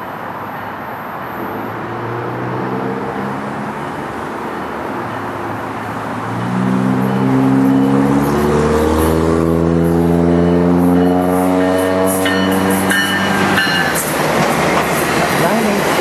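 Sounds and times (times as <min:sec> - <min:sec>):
train rumble: 0:05.1 - 0:16.0.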